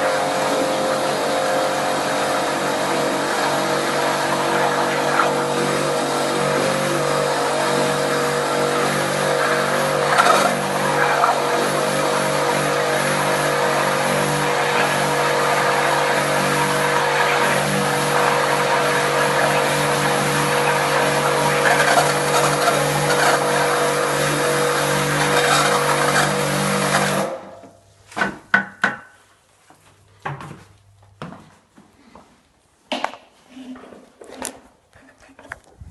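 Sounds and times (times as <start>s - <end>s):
drain machine motor running: 0.0s - 27.4s
water churning in toilet: 0.0s - 27.6s.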